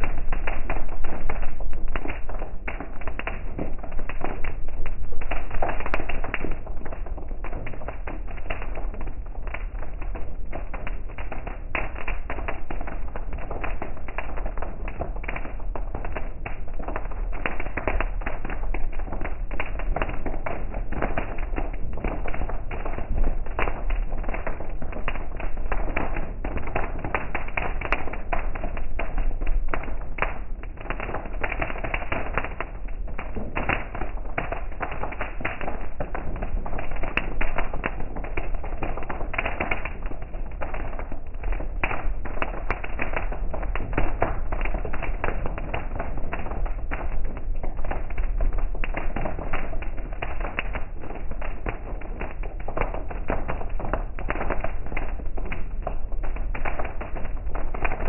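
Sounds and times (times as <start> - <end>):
heavy rain on car roof: 0.0 - 52.2, 52.9 - 58.0
low steady rumble: 0.0 - 58.0.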